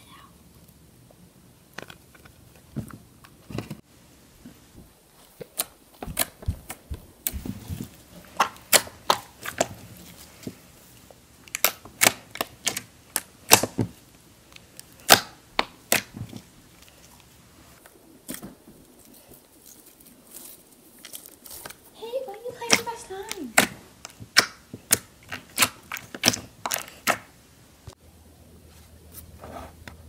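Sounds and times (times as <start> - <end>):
slime clicking and popping: 8.4 - 9.7, 11.5 - 13.8, 15.0 - 16.1, 23.6 - 27.3.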